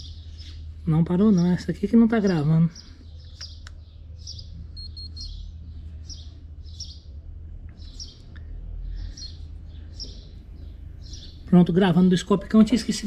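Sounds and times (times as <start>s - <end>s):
low steady rumble: 0.0s - 13.0s
small birds chirping: 0.0s - 13.0s.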